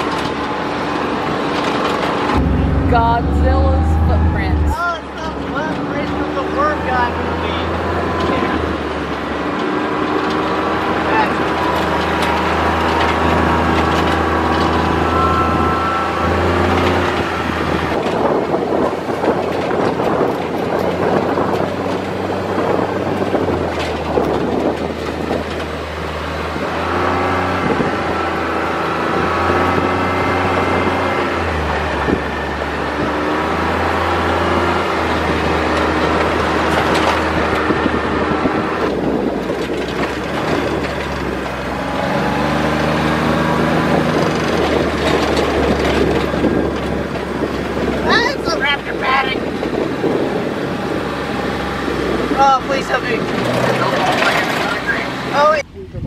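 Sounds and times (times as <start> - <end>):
off-road vehicle engine running: 0.0 - 56.0
road noise and rattling: 0.0 - 56.0.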